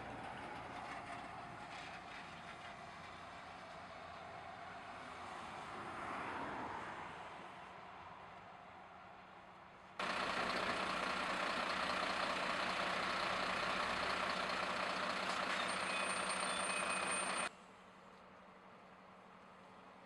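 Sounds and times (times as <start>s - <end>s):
heavy truck engine and road noise: 0.0s - 20.0s
thin high squeal: 15.5s - 17.5s.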